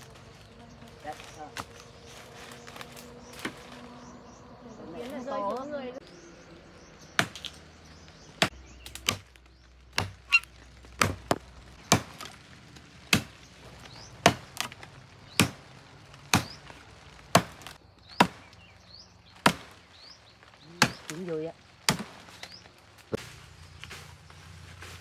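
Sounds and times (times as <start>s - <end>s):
machete chopping wood: 7.2s - 7.6s, 8.4s - 12.4s, 13.1s - 13.4s, 14.2s - 15.6s, 16.3s - 16.6s, 17.3s - 18.6s, 19.4s - 19.8s, 20.8s - 21.2s, 21.8s - 22.6s.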